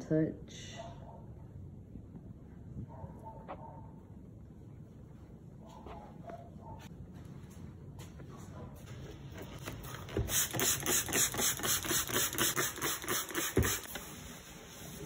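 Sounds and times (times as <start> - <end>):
spray bottle squirts: 10.2 - 14.1.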